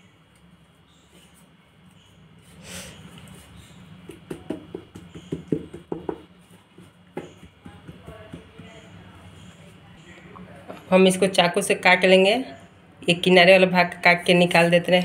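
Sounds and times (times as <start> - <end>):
hands patting dough: 3.9 - 9.1.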